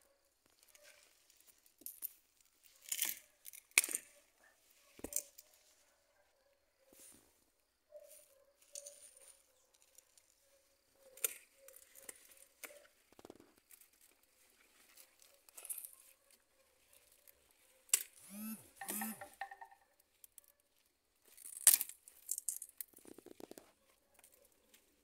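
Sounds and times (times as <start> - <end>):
plants rustling and tearing: 11.1 - 18.2
sharp click: 18.3 - 19.6.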